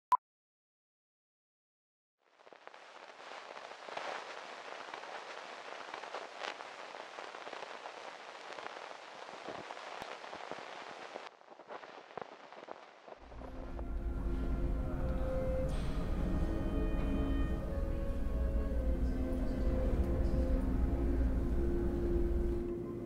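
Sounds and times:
record surface crackle and pops: 2.2 - 14.0.

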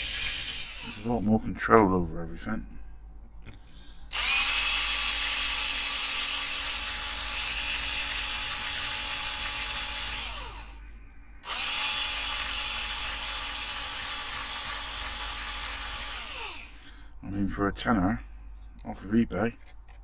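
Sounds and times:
small electric drill running: 0.0 - 1.2, 4.1 - 10.8, 11.4 - 16.8.

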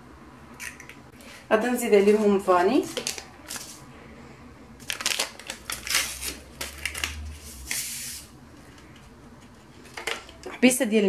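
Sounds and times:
paper sachet crackling: 4.8 - 7.8.

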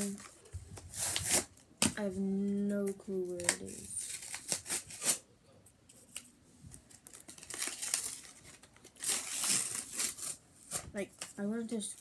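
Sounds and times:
plastic packaging crinkling and tearing: 0.0 - 1.6, 3.2 - 5.2, 6.1 - 12.0.

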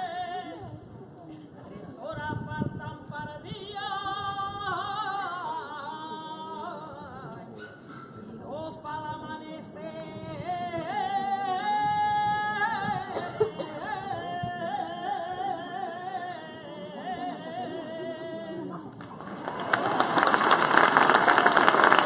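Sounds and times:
person singing unaccompanied: 0.0 - 0.8, 2.0 - 7.5, 8.5 - 18.7
applause: 19.0 - 22.0.

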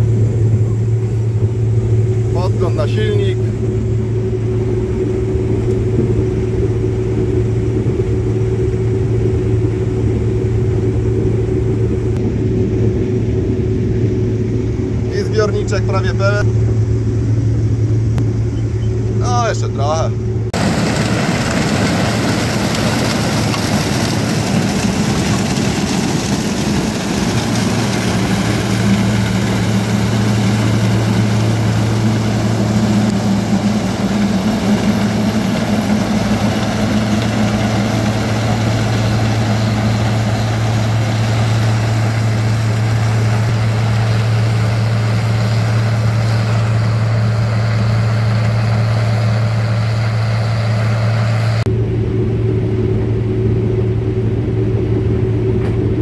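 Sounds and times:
combine harvester running: 0.0 - 56.0.

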